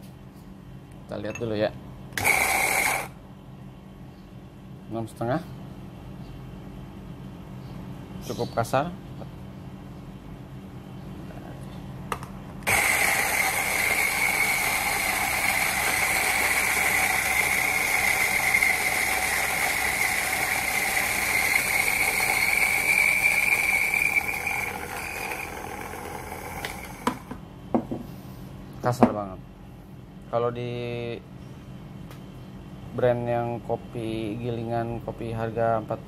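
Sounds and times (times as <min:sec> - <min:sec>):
coffee grinder motor whining: 0:02.2 - 0:03.2, 0:12.6 - 0:27.4.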